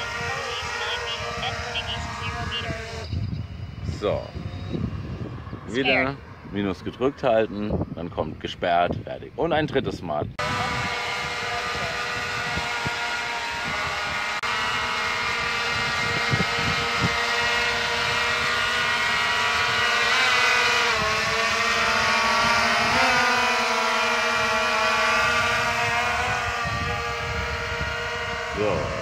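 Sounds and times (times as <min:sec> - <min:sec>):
drone propellers buzzing: 0:00.0 - 0:08.4, 0:10.4 - 0:29.0.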